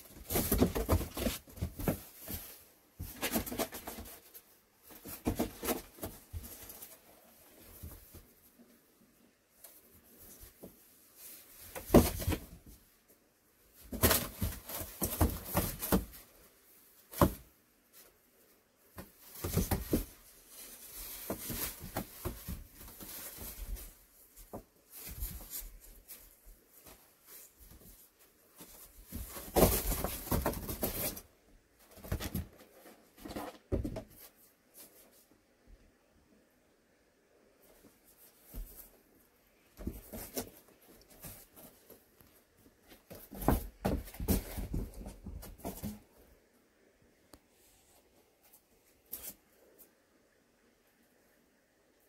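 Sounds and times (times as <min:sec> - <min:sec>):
claws scratching and paws scuffling: 0:00.0 - 0:08.8, 0:13.6 - 0:35.3, 0:37.6 - 0:46.3.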